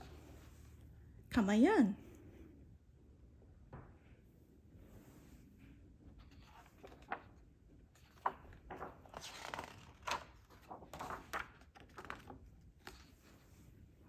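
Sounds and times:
book pages rustling: 6.0 - 14.0.

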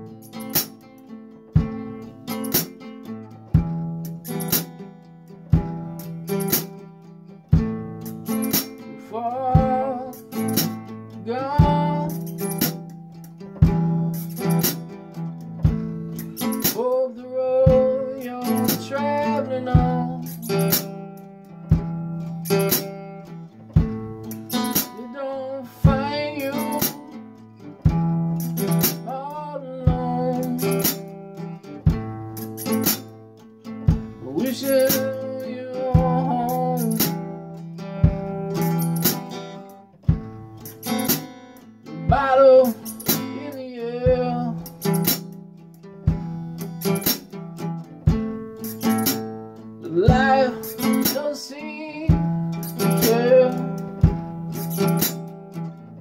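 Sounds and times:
acoustic guitar strumming: 0.0 - 56.0
man singing: 9.0 - 10.6, 11.2 - 12.3, 16.7 - 20.8, 24.8 - 27.4, 29.0 - 31.1, 34.2 - 37.4, 41.9 - 45.0, 49.8 - 54.1.

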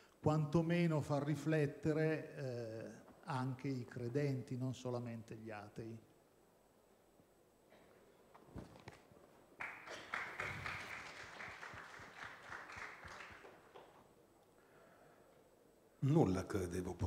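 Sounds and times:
microphone rustling: 8.3 - 9.3.

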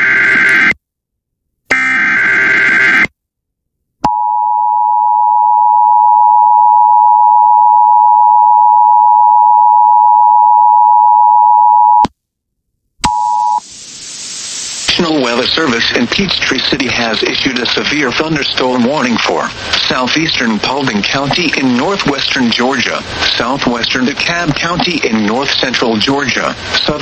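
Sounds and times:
two-tone attention signal: 13.0 - 13.6
hiss: 13.6 - 16.6.

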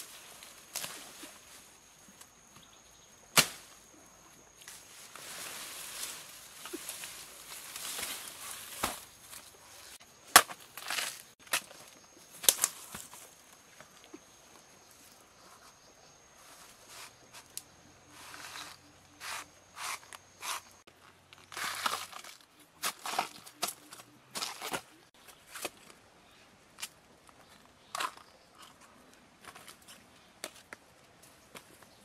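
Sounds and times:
knife chopping into tree trunk: 3.4 - 3.7.

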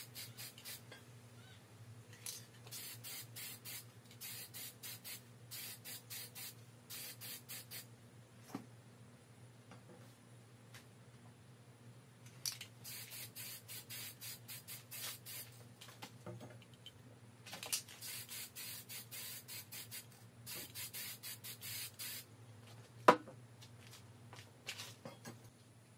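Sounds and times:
spray can hissing bursts: 0.0 - 0.9, 2.7 - 7.9, 12.8 - 15.6, 18.0 - 22.3.

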